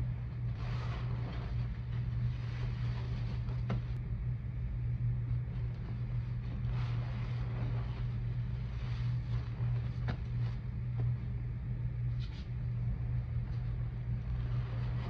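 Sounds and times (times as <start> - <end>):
steady low hum: 0.0 - 15.0
soap foam squelching: 0.1 - 4.0, 5.8 - 10.6, 13.8 - 15.0.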